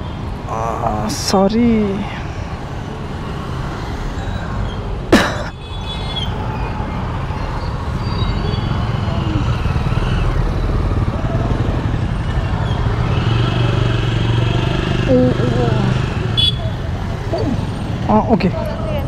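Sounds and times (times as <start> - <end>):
street traffic: 0.0 - 19.0
motorcycle engine hum: 8.8 - 19.0.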